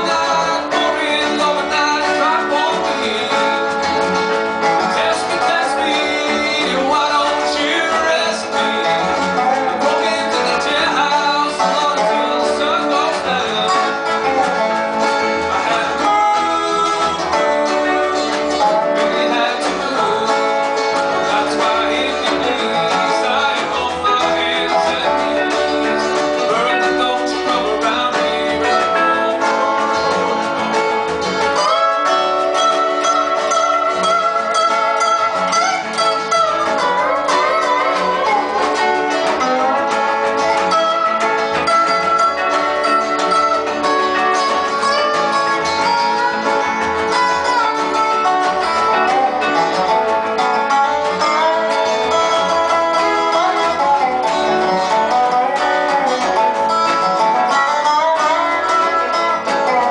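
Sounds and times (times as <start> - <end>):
country-rock band playing: 0.0 - 59.9.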